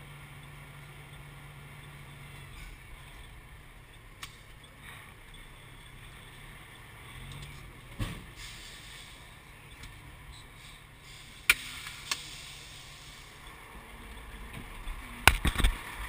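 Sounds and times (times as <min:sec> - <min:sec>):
truck engine running low: 0:00.0 - 0:16.0
thump: 0:07.9 - 0:08.4.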